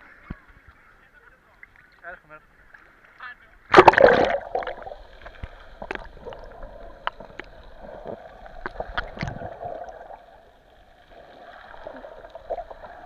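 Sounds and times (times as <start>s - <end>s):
underwater rush: 2.6s - 13.0s
faint underwater clicks and knocks: 4.6s - 9.5s.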